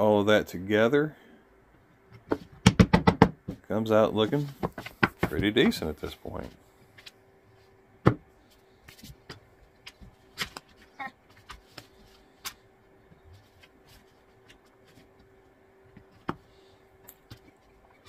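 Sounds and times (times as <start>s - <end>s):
faint steady hum: 0.0s - 18.0s
wood blocks knocking: 2.2s - 3.6s.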